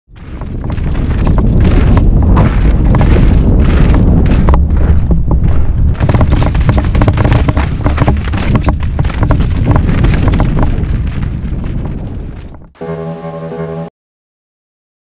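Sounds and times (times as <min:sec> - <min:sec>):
tyres crunching over gravel: 0:00.1 - 0:12.6
wind buffeting microphone: 0:00.1 - 0:12.8.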